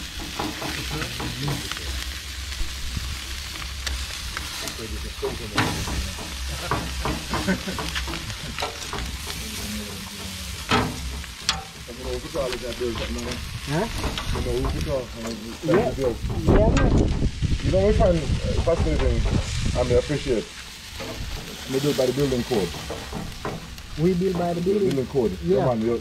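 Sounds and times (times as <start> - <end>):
chicken sizzling on a grill: 0.0 - 26.0
metal tongs scraping a grate: 10.5 - 16.0.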